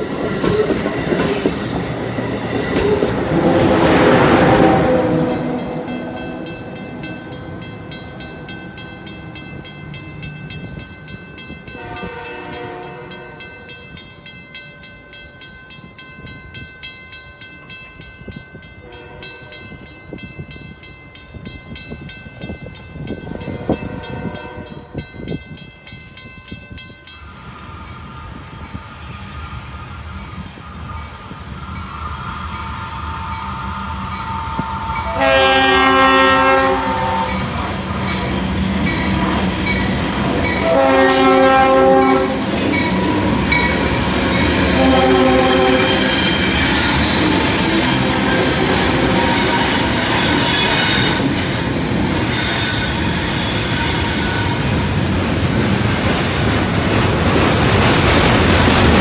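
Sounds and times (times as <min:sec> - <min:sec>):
approaching freight train: 0:00.0 - 0:59.0
departing train: 0:00.0 - 0:59.0
distant train horn blasts: 0:02.8 - 0:08.4, 0:11.7 - 0:13.8, 0:18.8 - 0:19.8, 0:23.4 - 0:25.0, 0:34.3 - 0:39.6, 0:40.3 - 0:43.8, 0:44.5 - 0:46.8
locomotive horn: 0:03.2 - 0:06.4, 0:11.8 - 0:13.7, 0:18.9 - 0:19.5, 0:23.5 - 0:25.0, 0:34.4 - 0:37.9, 0:40.5 - 0:42.8, 0:44.6 - 0:46.4.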